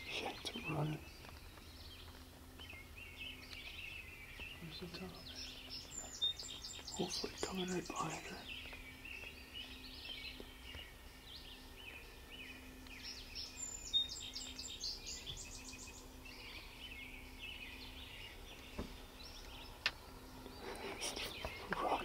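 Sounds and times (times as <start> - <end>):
faint low hum: 0.0 - 22.0
songbirds chirping and singing: 0.0 - 22.0.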